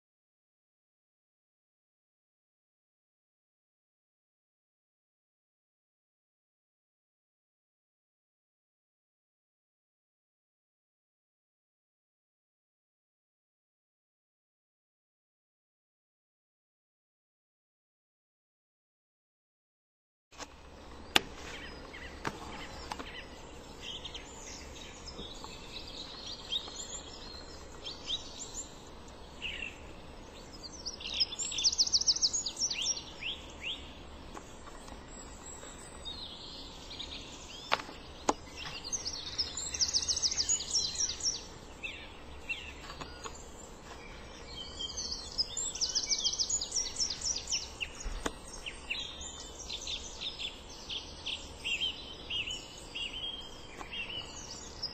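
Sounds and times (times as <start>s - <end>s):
songbirds singing and calling: 20.4s - 54.9s.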